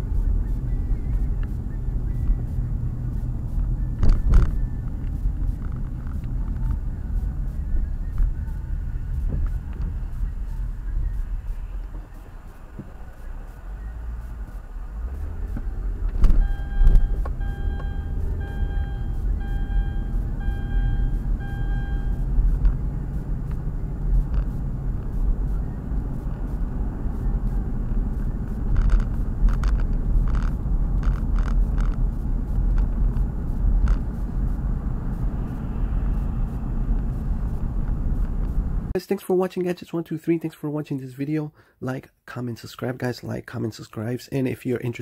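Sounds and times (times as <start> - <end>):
car cabin rumble: 0.0 - 39.0
short electronic beeps: 16.2 - 22.6.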